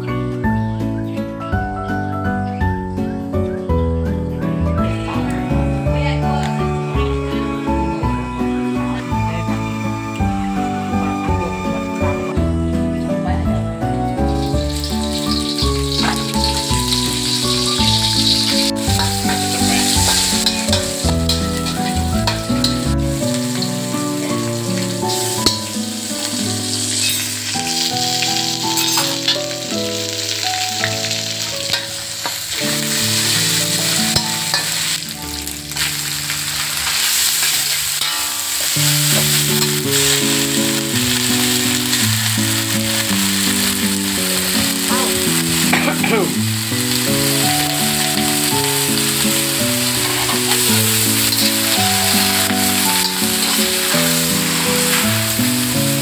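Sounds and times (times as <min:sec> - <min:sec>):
background music: 0:00.0 - 0:56.0
oil sizzling in a wok: 0:04.5 - 0:56.0
metal spatula tossing food: 0:14.2 - 0:56.0.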